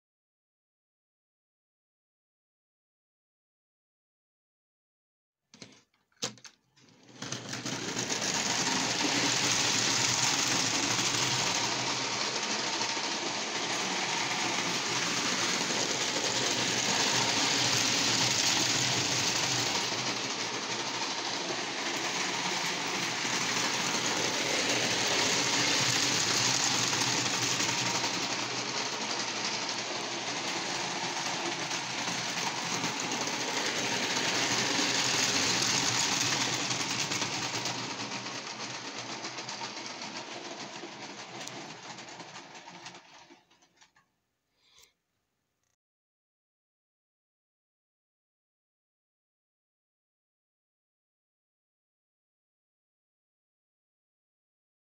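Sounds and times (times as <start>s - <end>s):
clockwork motor whirring: 7.0s - 43.4s
wheels clattering on rails: 7.0s - 43.9s.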